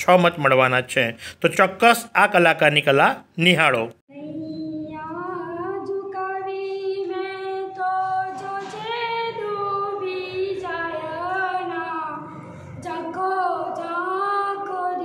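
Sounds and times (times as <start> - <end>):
girl singing solo: 4.1 - 15.0.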